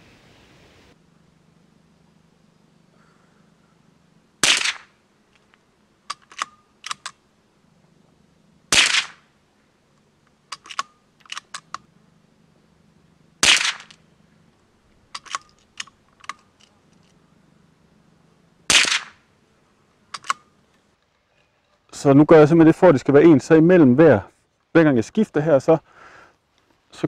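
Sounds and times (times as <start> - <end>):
suppressed rifle shots: 4.4 - 5.0, 8.7 - 9.3, 13.4 - 14.0, 18.7 - 19.2
rifle bolt clicking: 6.1 - 7.2, 10.5 - 11.8, 15.1 - 17.1, 20.1 - 20.5.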